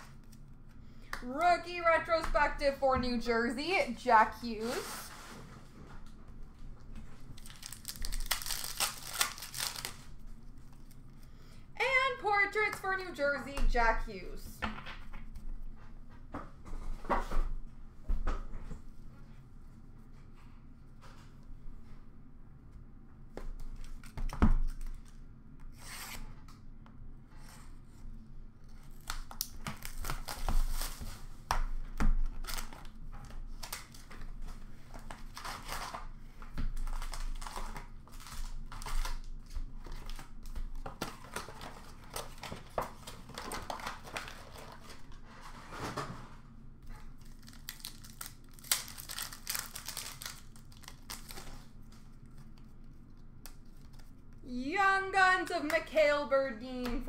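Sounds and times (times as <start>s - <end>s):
wrappers torn and crinkled: 7.3s - 11.2s, 28.7s - 31.3s, 35.1s - 45.0s, 47.0s - 54.1s.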